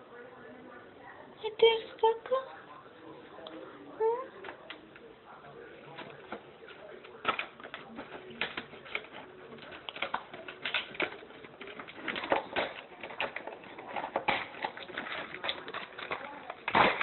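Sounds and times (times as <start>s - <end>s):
plastic packets crinkling: 6.8s - 17.0s.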